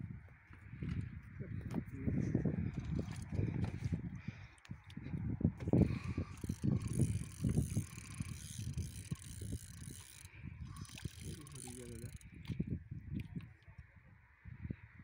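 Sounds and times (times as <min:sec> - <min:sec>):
fishing reel clicking and whirring: 0:02.7 - 0:03.3, 0:05.6 - 0:12.6.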